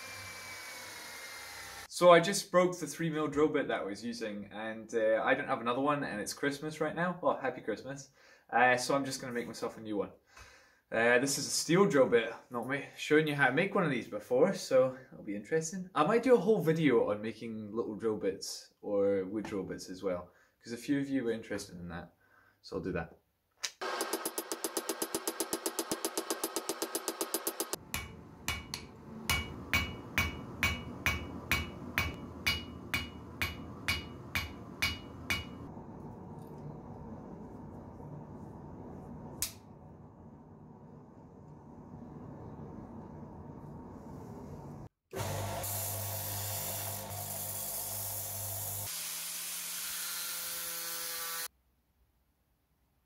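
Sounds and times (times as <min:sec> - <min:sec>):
electric grinder motor hum: 0:00.0 - 0:01.9, 0:23.8 - 0:27.7, 0:45.2 - 0:48.8
hammer ringing on anvil: 0:27.9 - 0:35.6
steel being ground hiss: 0:45.6 - 0:49.3.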